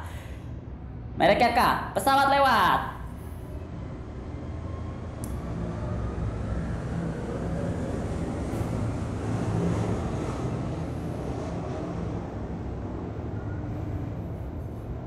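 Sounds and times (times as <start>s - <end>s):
airplane passing overhead: 2.8s - 15.0s.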